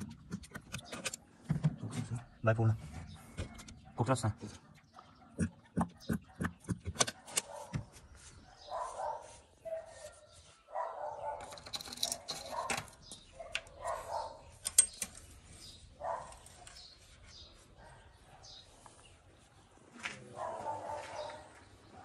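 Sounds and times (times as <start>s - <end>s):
dog barking: 4.9s - 11.5s, 12.2s - 14.6s, 16.0s - 16.9s, 17.7s - 18.8s, 20.2s - 22.0s.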